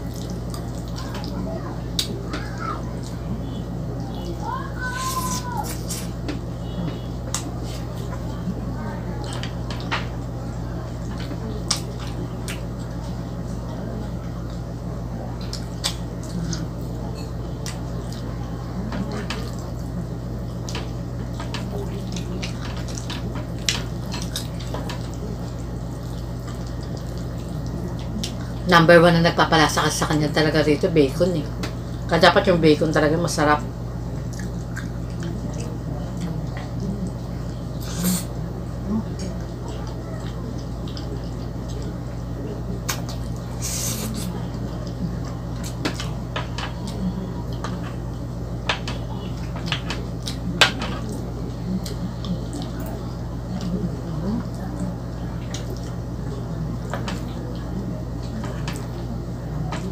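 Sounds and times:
wet chewing and mouth sounds: 0:00.0 - 0:03.3, 0:04.0 - 0:28.7, 0:34.1 - 0:59.9
steady low hum: 0:00.0 - 0:59.9
person chewing: 0:34.2 - 0:38.4, 0:42.8 - 0:48.2, 0:49.4 - 0:53.8.

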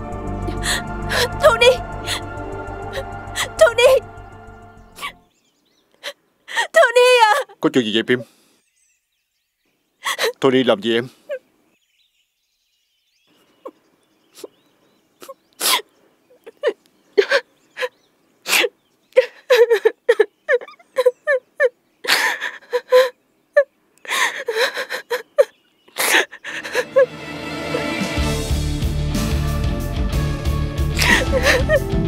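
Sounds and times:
soft music: 0:00.0 - 0:05.3, 0:26.6 - 0:32.0
woman crying and sniffing: 0:00.5 - 0:04.0, 0:04.9 - 0:05.2, 0:06.0 - 0:07.6, 0:10.0 - 0:10.4, 0:15.2 - 0:27.9, 0:31.0 - 0:31.9.

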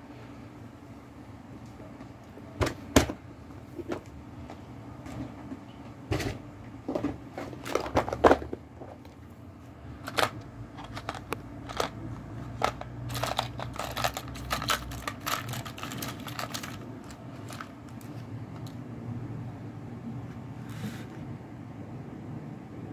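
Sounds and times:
plastic box clicks and rattles: 0:06.9 - 0:09.2, 0:10.0 - 0:18.8.

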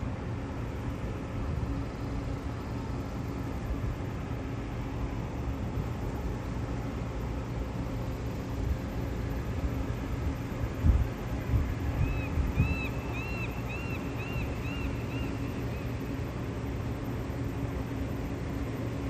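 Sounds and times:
faint hum: 0:00.0 - 0:19.0
distant engines rumbling: 0:08.1 - 0:18.3.

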